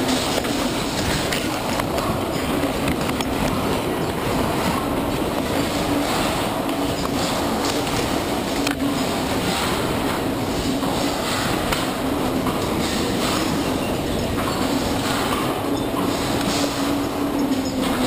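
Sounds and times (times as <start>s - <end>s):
building rumbling and rattling: 0.0s - 18.0s
steady low hum: 0.0s - 18.0s.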